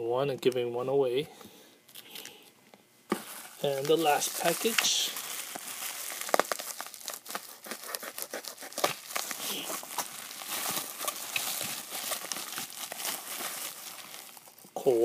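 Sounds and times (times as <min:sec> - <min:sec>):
bubble wrap crackling: 0:03.1 - 0:15.0.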